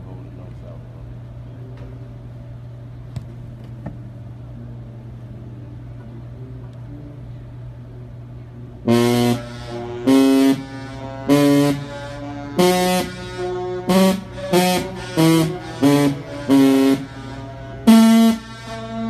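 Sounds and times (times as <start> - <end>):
low brass notes: 8.8 - 19.0.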